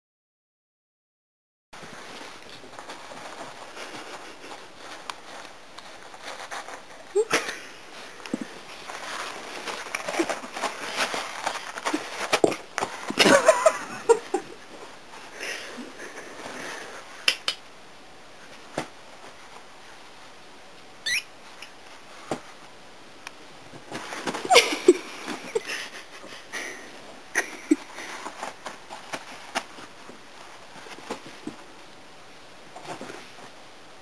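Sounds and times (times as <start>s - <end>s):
kitten wrestling paper roll: 1.8s - 14.5s, 23.7s - 26.4s.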